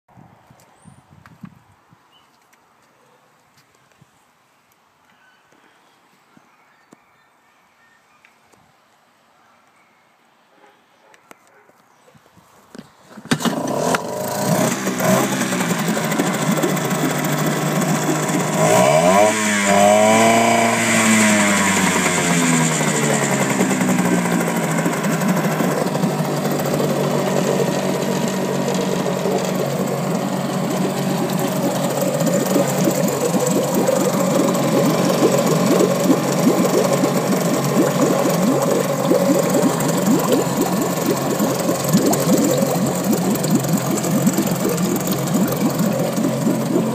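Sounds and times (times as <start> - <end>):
outboard motor running: 13.3 - 46.9.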